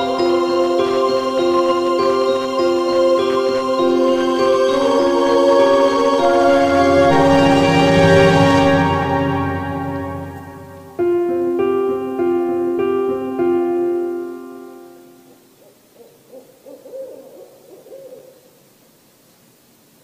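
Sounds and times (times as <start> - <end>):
piano-like jingle: 0.0 - 15.3
owl hooting: 15.2 - 18.8.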